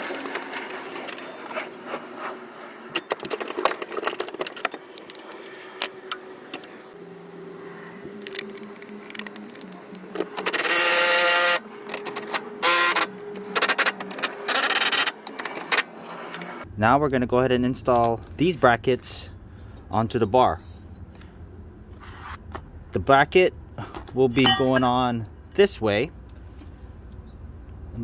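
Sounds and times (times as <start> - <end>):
metal tools rattling: 3.0 - 5.5, 24.2 - 25.1
power tool spinning socket: 8.2 - 15.8.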